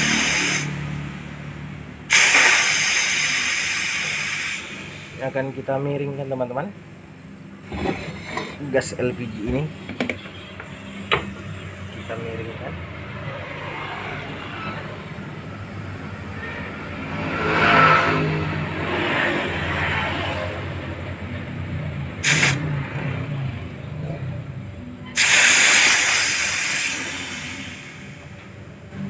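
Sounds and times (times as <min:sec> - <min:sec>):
pressurised gas hissing from pipe: 0:00.0 - 0:01.0, 0:02.1 - 0:05.4, 0:22.2 - 0:22.7, 0:25.1 - 0:28.6.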